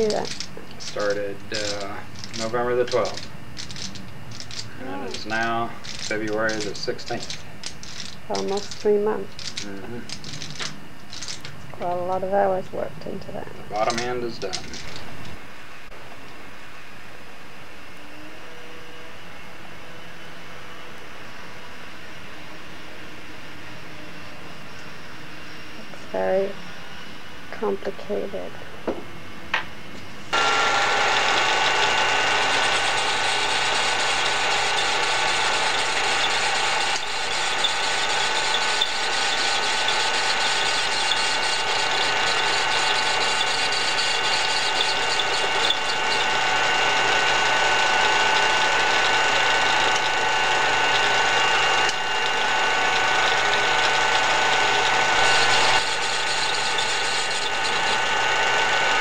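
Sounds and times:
lathe running with whine: 0:00.0 - 0:11.5, 0:30.2 - 0:59.0.

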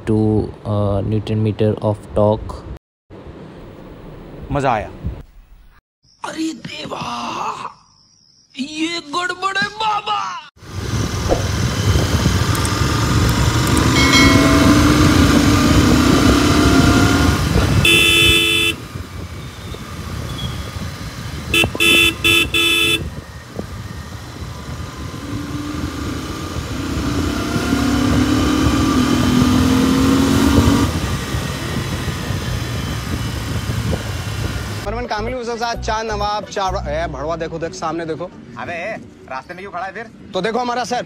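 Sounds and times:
wind and road rumble: 0:00.0 - 0:05.8, 0:10.6 - 0:34.9
motorcycle engine accelerating: 0:10.6 - 0:34.9
vehicle horn: 0:13.8 - 0:20.6, 0:21.5 - 0:23.2
short horn beeps: 0:17.8 - 0:18.8, 0:21.6 - 0:23.1.

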